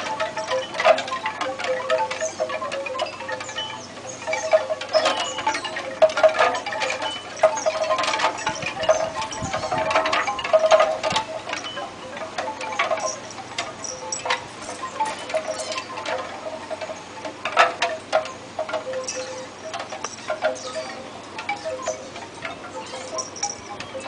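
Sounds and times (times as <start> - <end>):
light metallic chiming: 0.0 - 24.0.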